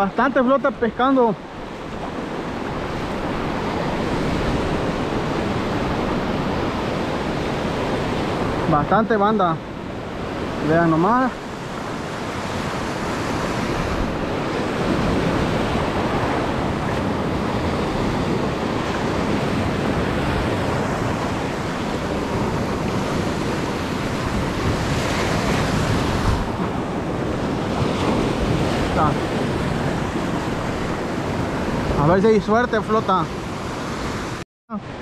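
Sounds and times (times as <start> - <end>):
surf washing over sand: 0.0 - 35.0
wind buffeting microphone: 9.6 - 34.4.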